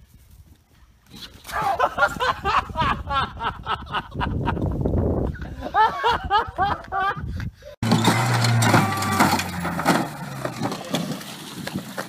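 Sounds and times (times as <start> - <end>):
people exclaiming loudly: 8.6 - 9.4.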